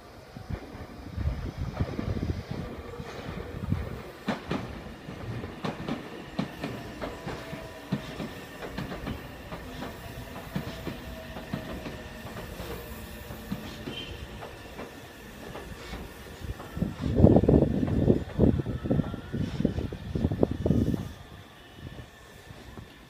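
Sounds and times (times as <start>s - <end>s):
train wheels clicking over rail joints: 1.7s - 19.6s.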